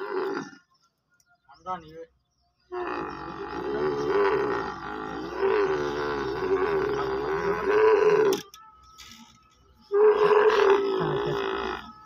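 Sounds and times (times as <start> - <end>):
camel bellowing: 0.0 - 0.6, 2.7 - 8.4, 9.9 - 12.0.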